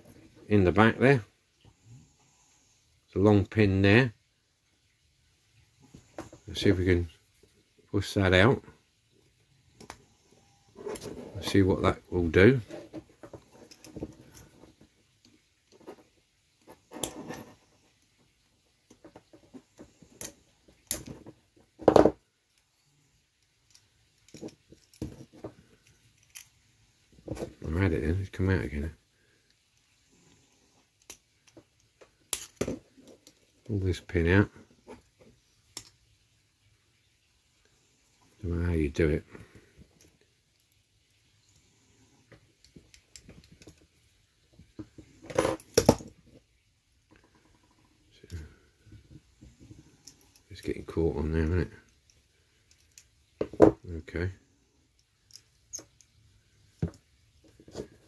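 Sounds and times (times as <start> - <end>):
toy parts clicking and knocking: 18.8 - 22.7, 23.4 - 26.6, 30.9 - 33.6, 35.7 - 36.1, 42.6 - 46.2, 51.9 - 53.7, 54.9 - 58.0.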